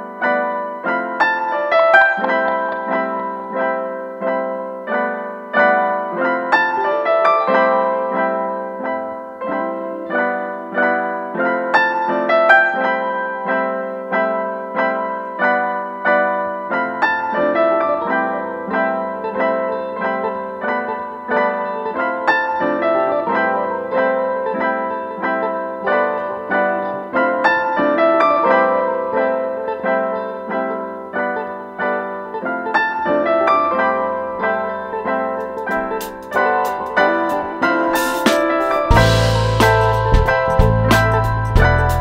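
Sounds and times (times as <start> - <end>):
piano music: 0.0 - 42.0.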